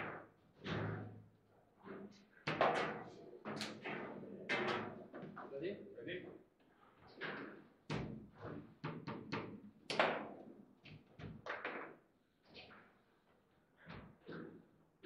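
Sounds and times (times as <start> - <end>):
foosball ball and rods knocking: 2.5 - 5.4, 7.2 - 10.4, 11.0 - 12.0.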